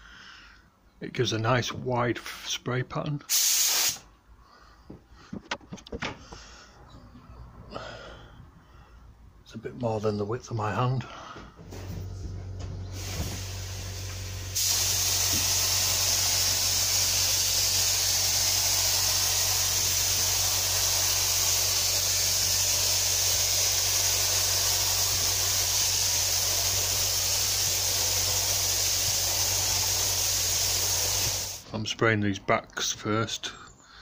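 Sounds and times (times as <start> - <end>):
spray gun hissing: 3.3 - 4.0, 13.0 - 31.7
low hum: 11.1 - 16.2.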